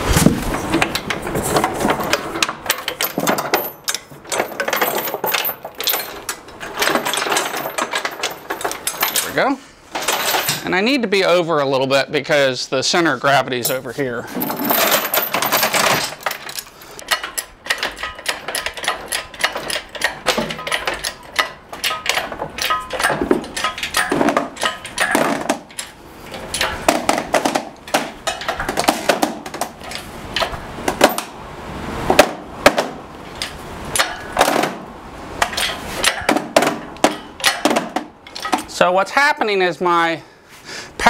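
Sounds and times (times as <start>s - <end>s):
steel chain rattling against metal: 0.7s - 11.0s, 13.5s - 31.4s.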